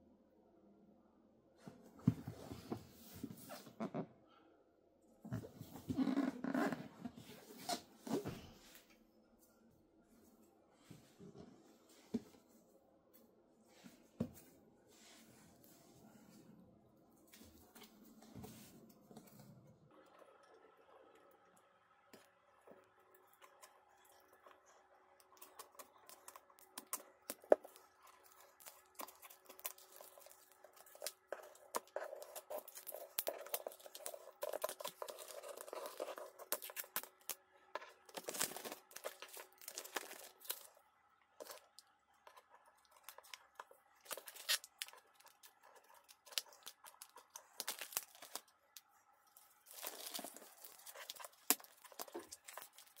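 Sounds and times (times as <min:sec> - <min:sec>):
plastic packaging crinkling: 0:25.4 - 0:40.8, 0:41.4 - 0:53.0.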